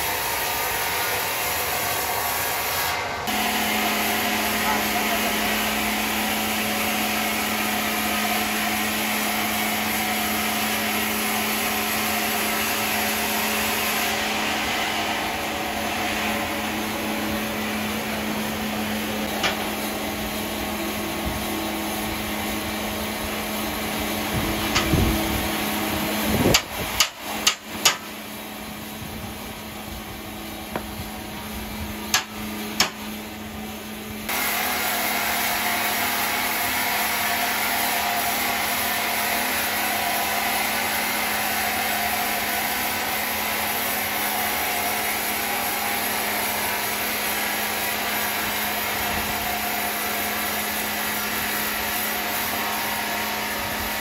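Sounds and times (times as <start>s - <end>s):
sawmill machinery humming: 0.0s - 54.0s
sharp knocks: 32.1s - 33.0s.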